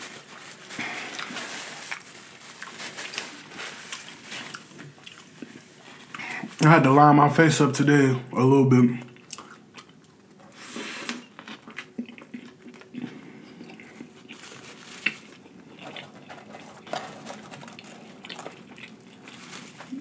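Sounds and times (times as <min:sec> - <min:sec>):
chewing with wet mouth smacks: 0:09.1 - 0:10.4, 0:11.3 - 0:14.4.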